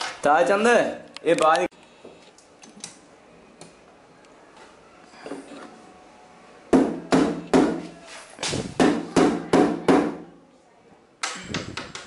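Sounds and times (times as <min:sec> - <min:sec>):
hammer striking nail: 0:06.7 - 0:07.8.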